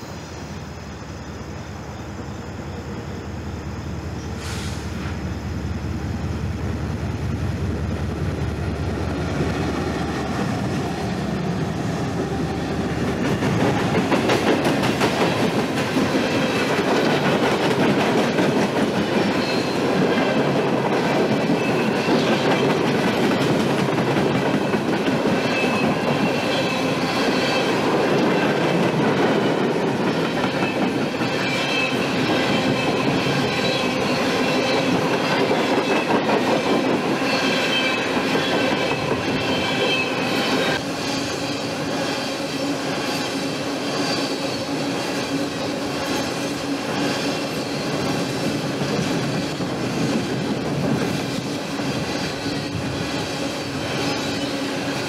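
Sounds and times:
freight train cars rolling: 0.0s - 55.0s
high wheel squeal: 19.2s - 20.0s, 25.4s - 27.9s, 30.1s - 50.5s, 51.4s - 55.0s.

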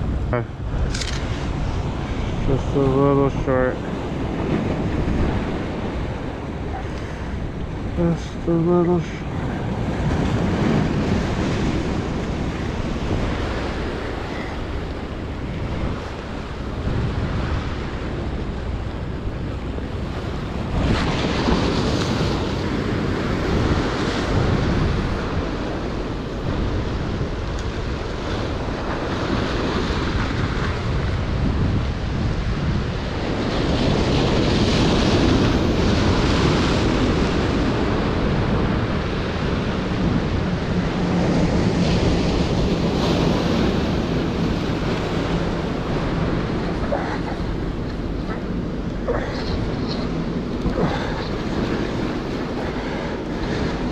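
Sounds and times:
surf breaking over rocks: 39.6s - 53.9s.

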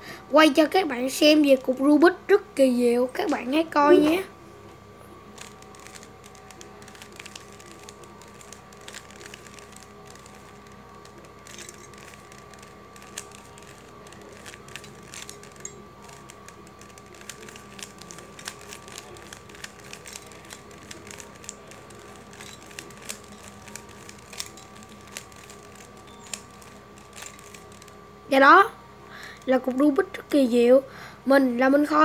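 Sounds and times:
puzzle cube clicking: 5.3s - 28.0s.

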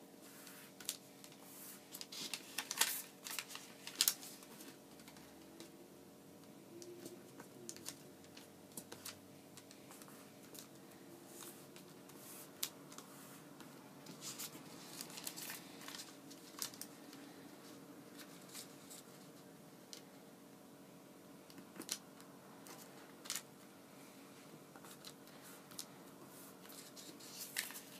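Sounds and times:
low steady hum: 0.0s - 27.9s
paper rustling and crackling: 0.3s - 5.7s, 6.8s - 20.1s, 24.8s - 27.9s.

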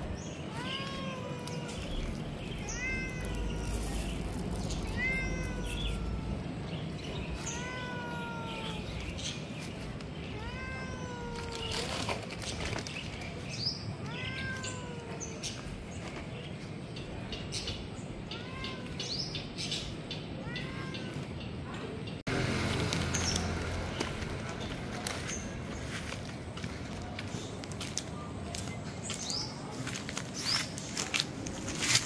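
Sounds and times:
cat meowing: 0.4s - 9.3s, 10.3s - 12.2s, 14.0s - 15.6s, 20.4s - 21.3s.

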